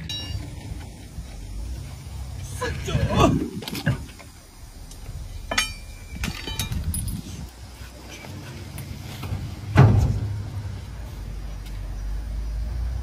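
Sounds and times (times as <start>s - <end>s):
heavy tire rolling on dirt: 0.0s - 13.0s
steady low rumble: 0.0s - 13.0s
loud heavy thud: 9.7s - 10.6s.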